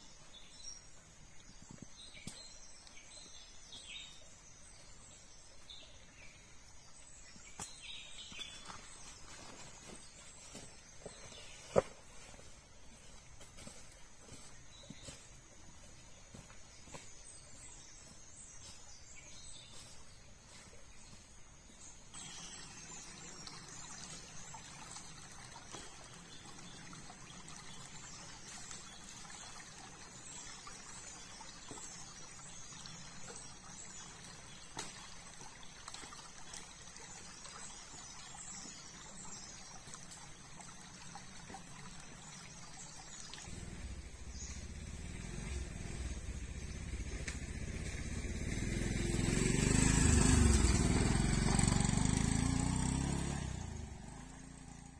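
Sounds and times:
stream trickling over rocks: 0.0s - 54.9s
motorcycle engine: 43.5s - 54.9s.

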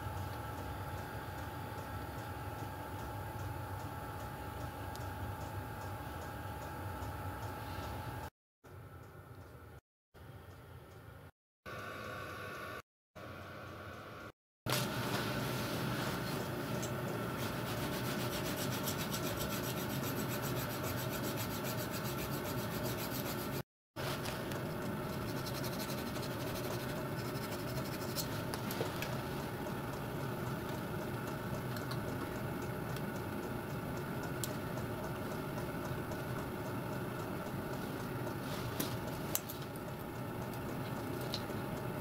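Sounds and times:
steady background hum: 0.0s - 42.0s
hand file rasping on metal: 17.8s - 23.6s.

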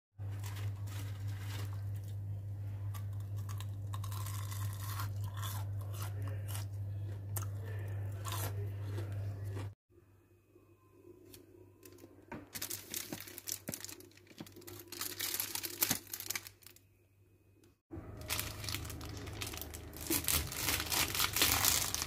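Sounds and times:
low steady hum: 0.2s - 22.0s
crunchy fried food being chewed: 0.3s - 9.8s.

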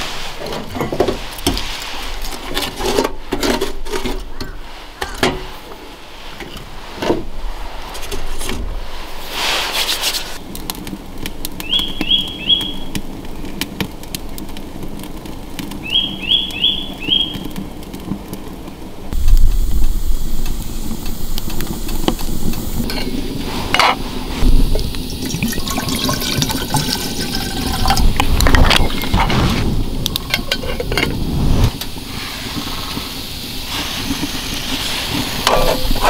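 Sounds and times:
stove burning low: 0.0s - 36.0s
knocks and rustles of handling: 0.2s - 5.8s
bird chirping rising notes: 11.6s - 12.9s, 15.8s - 17.5s
stove lighting whoosh: 19.1s - 25.7s, 26.4s - 36.0s.

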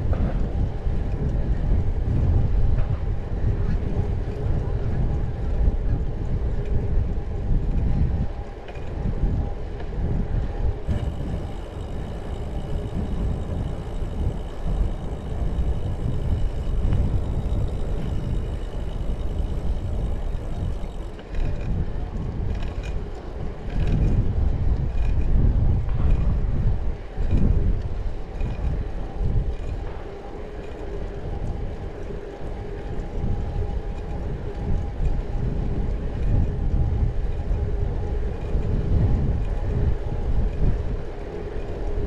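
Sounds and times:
wind buffeting microphone: 0.0s - 42.0s
faint high steady whine: 10.8s - 24.1s.

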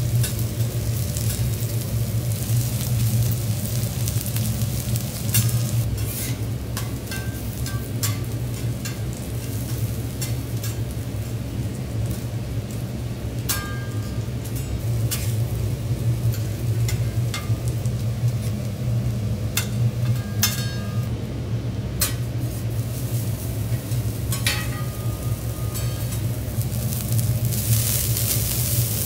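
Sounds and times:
bean sprouts sizzling: 0.0s - 20.5s, 21.8s - 29.0s
steady low hum: 0.0s - 29.0s
metal spatula scraping griddle: 5.2s - 10.8s.

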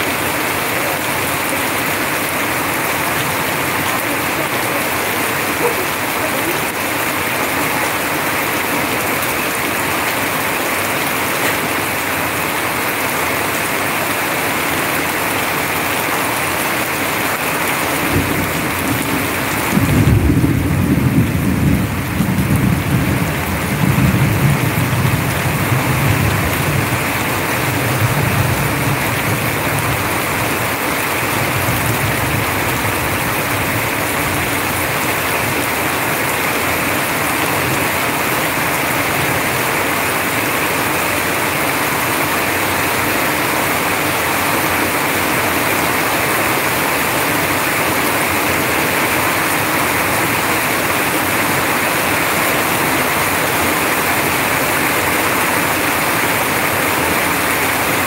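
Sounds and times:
heavy rain pouring: 0.0s - 58.0s
streams of water falling: 0.0s - 58.0s
thunder rumbling: 18.0s - 27.1s.

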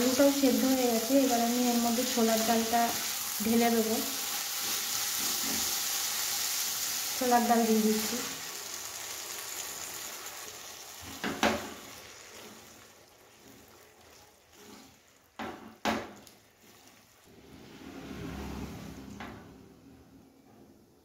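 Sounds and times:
vegetables sizzling in a pan: 0.0s - 17.3s
wooden spatula stirring: 11.0s - 17.6s
spatula knocking on pan: 11.1s - 11.8s.

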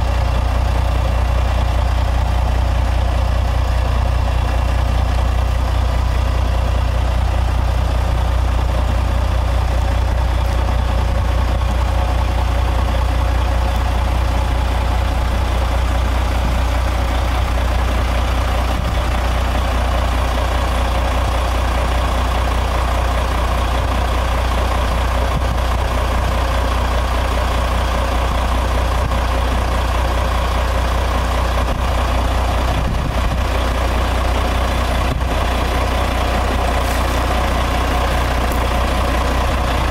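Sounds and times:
diesel engine idling: 0.0s - 39.9s.

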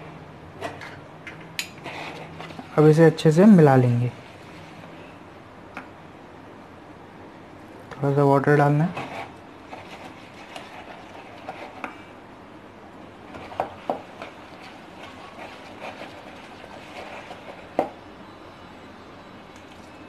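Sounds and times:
whisk scraping batter in bowl: 1.8s - 2.9s, 8.8s - 12.1s, 13.3s - 18.0s.

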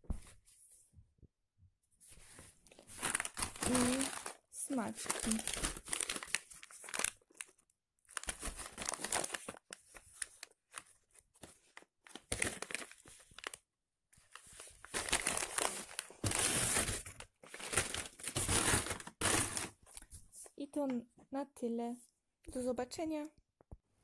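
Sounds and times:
packets crinkling: 2.8s - 13.6s, 14.3s - 20.1s.

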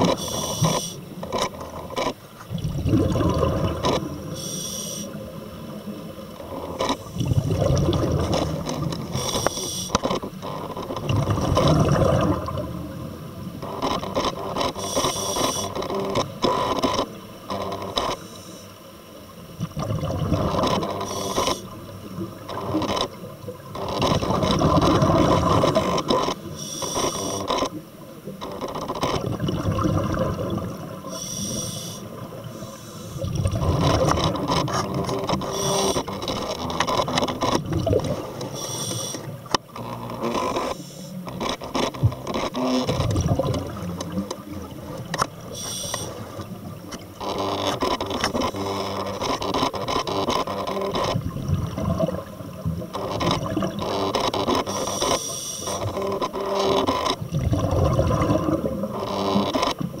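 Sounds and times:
hissing regulator inhale: 0.0s - 1.0s, 4.3s - 5.2s, 14.8s - 15.8s, 18.2s - 18.8s, 21.0s - 21.7s, 26.6s - 27.5s, 31.1s - 33.4s, 35.5s - 36.1s, 38.5s - 39.3s, 40.7s - 41.2s, 45.5s - 46.2s, 54.7s - 55.8s.

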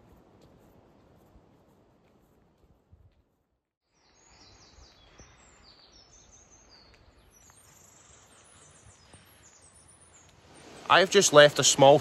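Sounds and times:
faint birdsong: 3.8s - 12.0s.

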